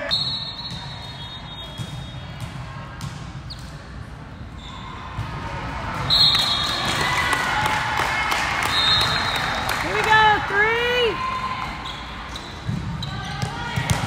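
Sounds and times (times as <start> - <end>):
referee's whistle: 0.0 - 2.4, 6.1 - 6.9, 8.6 - 9.6
volleyball hits: 0.0 - 4.0, 12.4 - 14.0.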